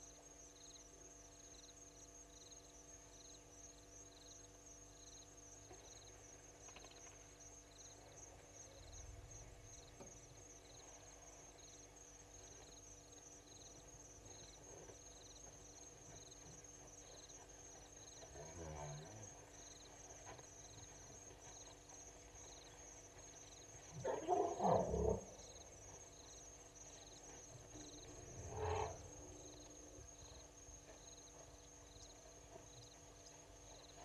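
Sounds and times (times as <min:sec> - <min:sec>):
insects chirping: 0:00.0 - 0:34.0
loud animal calls: 0:28.5 - 0:29.4.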